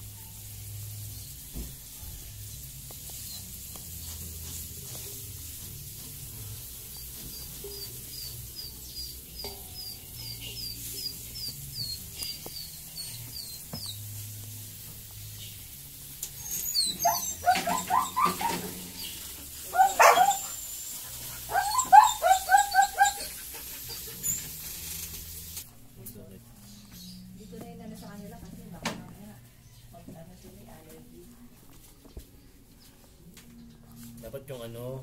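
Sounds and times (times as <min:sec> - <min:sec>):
thin high chirp: 0:06.5 - 0:14.1, 0:16.3 - 0:20.6
sharp animal calls: 0:16.4 - 0:20.6, 0:21.5 - 0:23.4.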